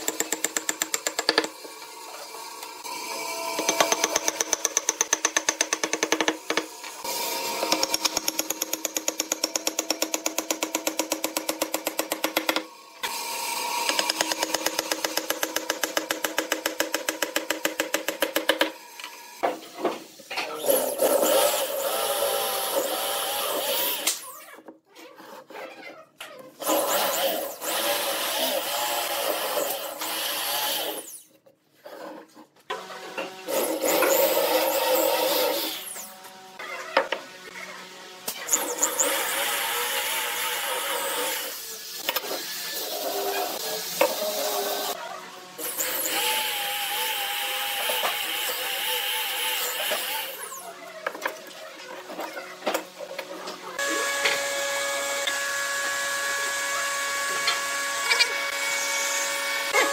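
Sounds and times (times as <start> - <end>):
electric drill boring into wood: 53.8 - 59.9.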